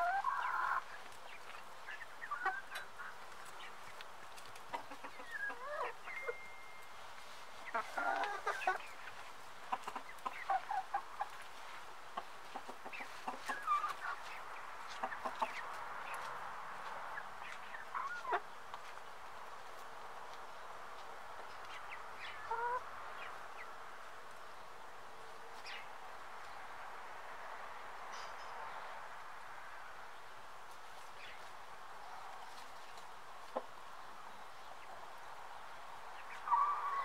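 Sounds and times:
hens clucking: 0.0s - 6.4s, 7.6s - 19.1s, 21.4s - 23.8s, 36.2s - 37.0s.

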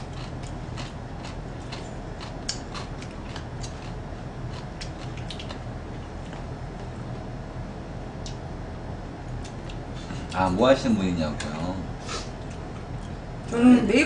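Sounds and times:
chewing clicks: 0.0s - 5.6s
low steady hum: 0.0s - 14.0s.

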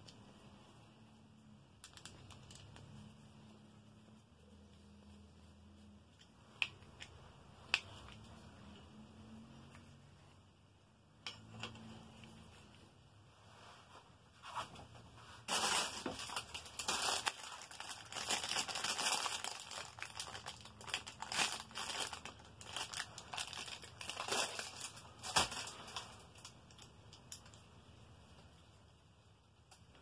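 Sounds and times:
plastic bag crinkling: 1.8s - 2.8s, 15.4s - 27.5s.

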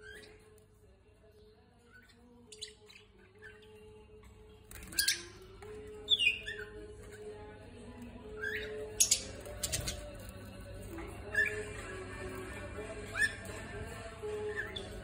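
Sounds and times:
budgerigars chirping and squawking: 1.8s - 7.4s, 8.3s - 10.2s, 11.0s - 15.0s.

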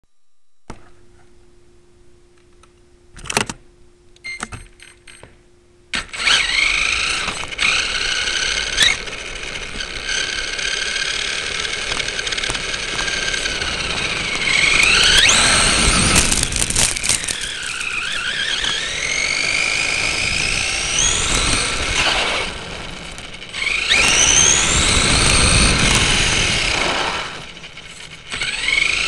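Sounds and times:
toy truck motor whining: 6.0s - 29.0s.

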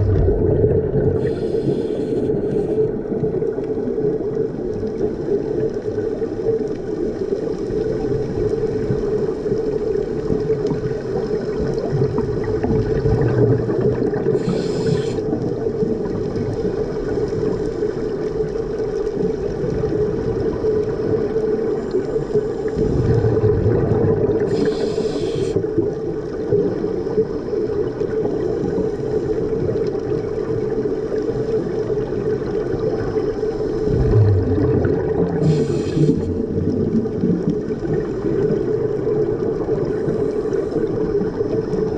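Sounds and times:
steady low drone: 0.0s - 1.9s, 33.6s - 36.8s
rush of bubbles: 0.0s - 17.6s, 18.2s - 28.8s, 29.6s - 41.9s
diver breathing through regulator: 1.1s - 3.0s, 14.2s - 15.3s, 24.4s - 25.8s, 33.4s - 36.7s.

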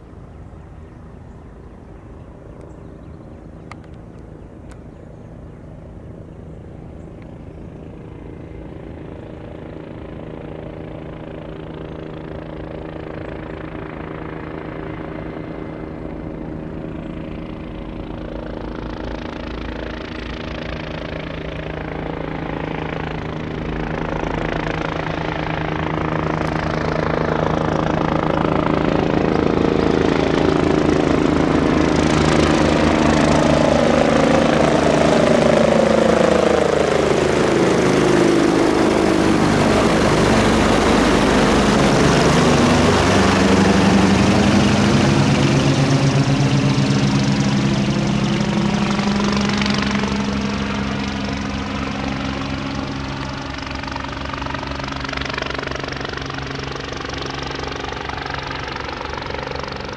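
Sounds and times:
helicopter rotor and turbine: 0.0s - 59.9s.

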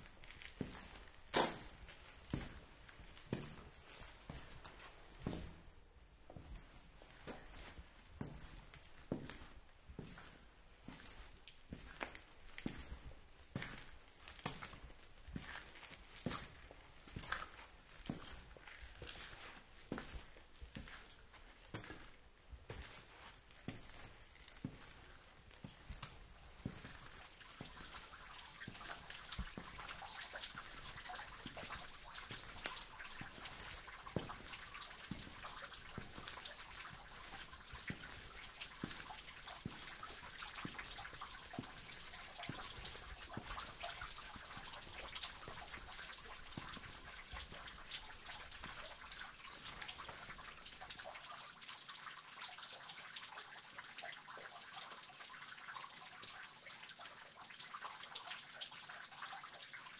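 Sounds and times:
trickle of running water: 0.0s - 59.9s
water drops dripping: 22.7s - 59.9s.

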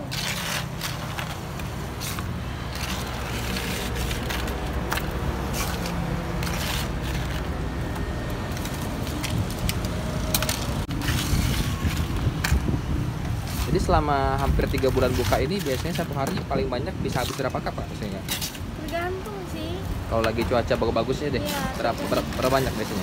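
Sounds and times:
ice cubes clattering and crunching: 0.0s - 7.6s, 13.4s - 16.4s.

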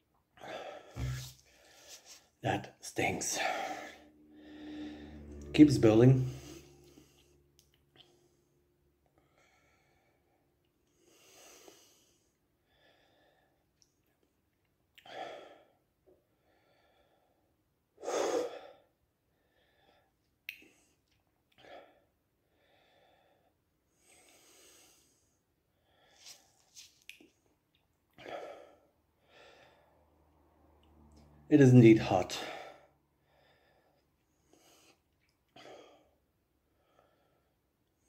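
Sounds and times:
man breathing hard: 0.4s - 2.3s, 3.3s - 5.3s, 9.2s - 13.6s, 16.4s - 20.1s, 21.6s - 26.5s, 28.2s - 30.0s, 32.4s - 35.0s.

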